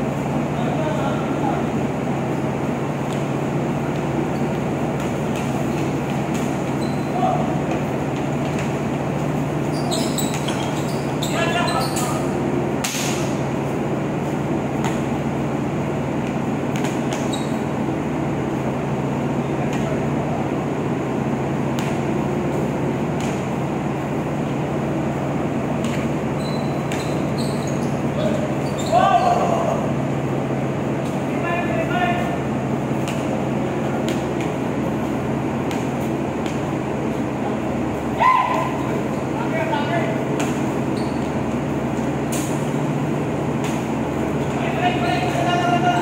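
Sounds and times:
ship machinery and ventilation drone: 0.0s - 46.0s
basketball bouncing: 25.8s - 27.8s.

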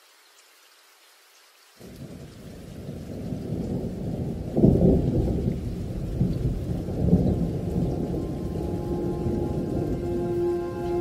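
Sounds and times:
rolling thunder: 1.8s - 11.0s.

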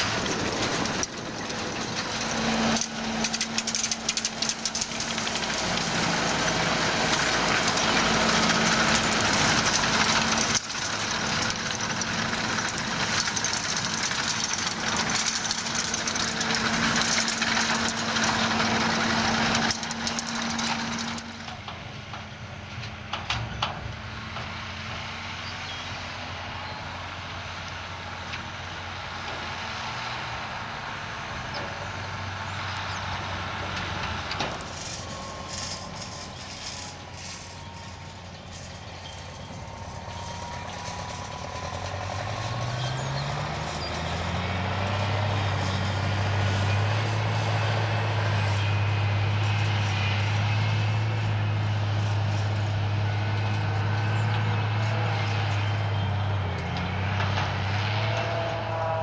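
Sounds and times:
forage harvester engine rising: 0.0s - 59.0s
quieter tractor towing trailer: 0.0s - 59.0s
tractor engine: 0.0s - 59.0s.

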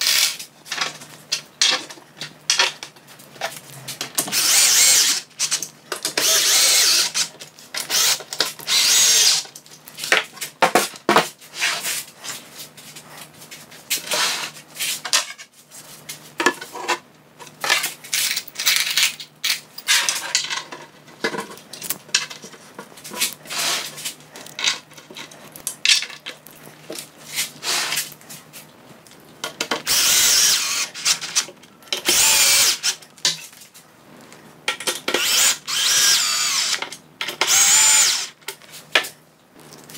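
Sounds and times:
cordless drill driving screws: 0.0s - 0.4s, 4.3s - 5.6s, 6.2s - 9.4s, 29.8s - 33.0s, 35.2s - 38.4s.

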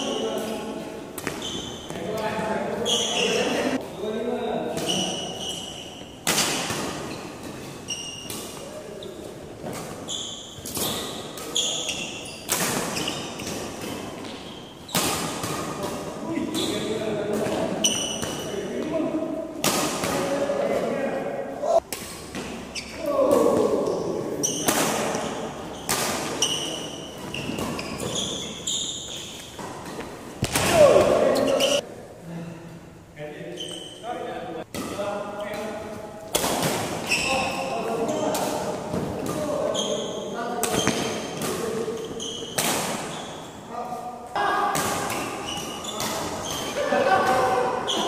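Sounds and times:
shoes squeaking on court: 1.2s - 4.0s, 4.7s - 15.9s, 16.5s - 18.6s, 22.0s - 23.0s, 23.8s - 31.8s, 33.5s - 34.0s, 37.0s - 43.7s, 45.0s - 48.0s
rackets hitting shuttlecock: 4.7s - 8.8s, 9.6s - 18.9s, 21.8s - 31.8s, 34.7s - 43.2s
voices: 22.8s - 25.6s, 43.7s - 48.0s.

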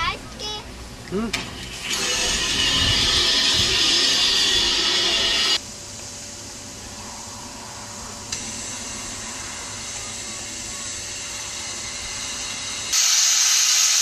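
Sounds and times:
steam locomotive hissing steam: 1.4s - 14.0s.

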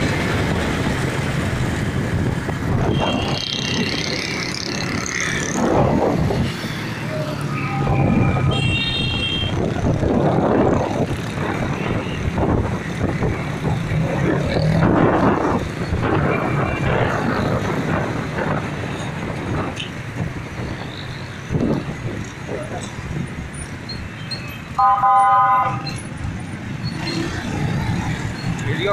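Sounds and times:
wind noise on microphone: 0.0s - 23.5s.

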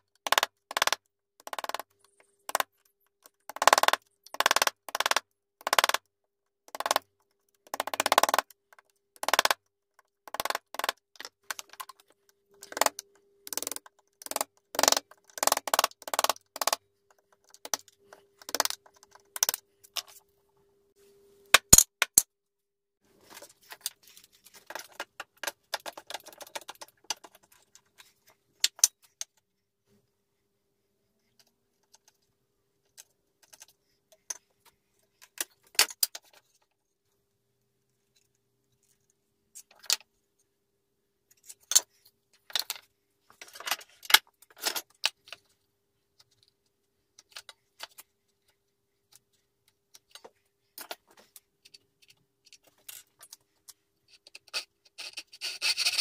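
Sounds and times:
faint steady hum: 16.8s - 21.6s.

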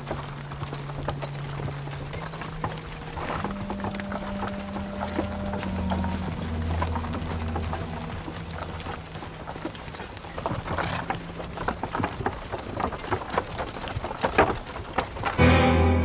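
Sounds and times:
horse hooves clip-clopping: 0.0s - 16.0s
music: 3.2s - 10.8s, 15.4s - 16.0s.

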